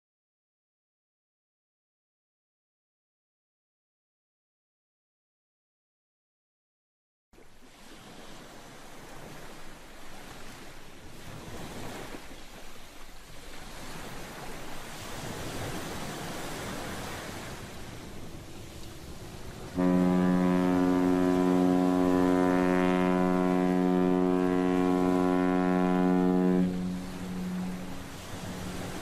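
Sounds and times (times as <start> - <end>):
wind: 7.3 - 29.0
sea surf: 7.4 - 29.0
ship's horn low blast: 15.0 - 29.0.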